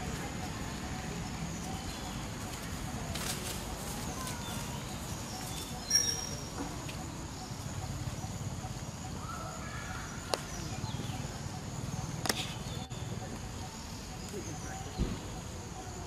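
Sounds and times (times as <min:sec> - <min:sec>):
sharp high-pitched squeak: 0:05.8 - 0:06.6.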